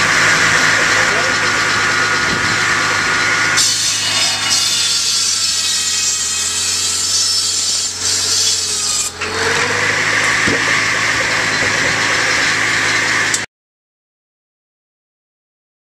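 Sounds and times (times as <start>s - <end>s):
tractor engine humming: 0.0s - 7.1s, 7.8s - 13.5s
buzz saw cutting wood: 0.0s - 13.5s
saw blade whine: 0.0s - 13.5s.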